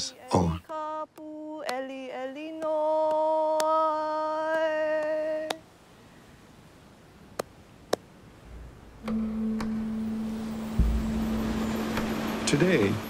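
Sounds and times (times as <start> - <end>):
long held note: 8.5 - 13.0.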